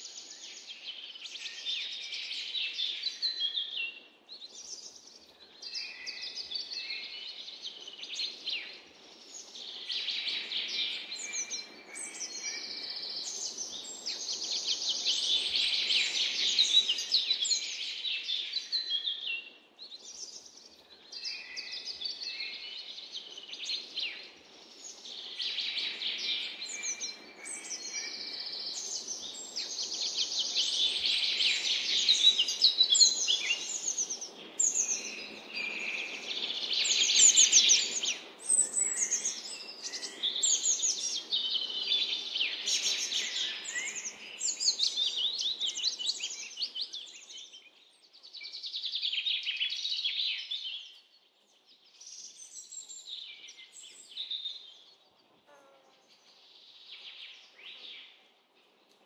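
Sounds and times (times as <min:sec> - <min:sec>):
songbirds singing: 0:00.0 - 0:59.0.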